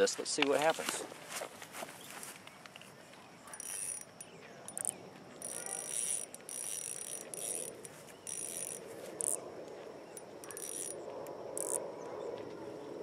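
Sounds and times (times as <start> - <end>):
fishing reel whirring and clicking: 3.5 - 9.4, 10.2 - 11.8.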